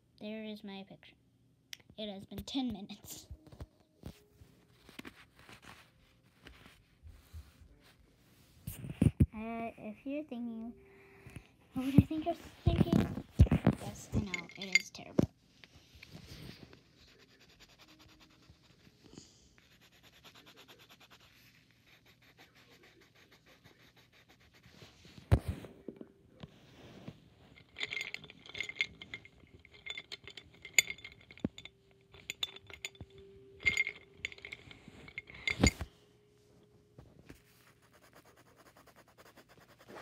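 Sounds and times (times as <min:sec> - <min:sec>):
scratchy clicks and clinks: 0:12.7 - 0:15.2, 0:27.5 - 0:35.9
pencils scratching on paper: 0:16.8 - 0:19.0, 0:19.6 - 0:25.6, 0:37.7 - 0:40.0.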